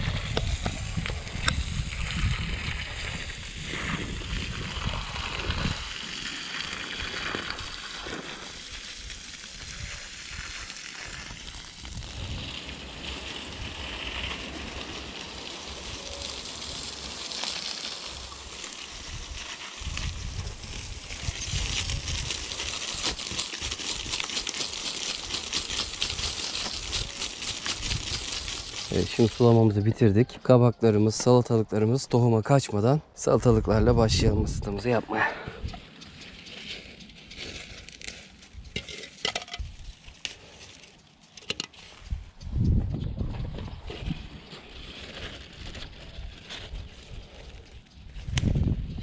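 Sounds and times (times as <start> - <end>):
hose water spattering on soil: 0.0 - 29.8
leaves and stems rustling: 0.0 - 30.0, 34.2 - 42.4, 43.8 - 48.6
stems snapping: 21.1 - 29.4, 37.3 - 41.8.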